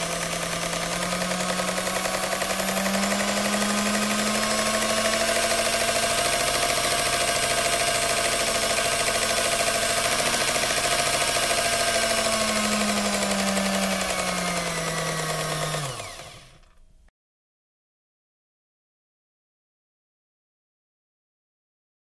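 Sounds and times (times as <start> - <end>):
electric food mixer motor: 0.0 - 16.9.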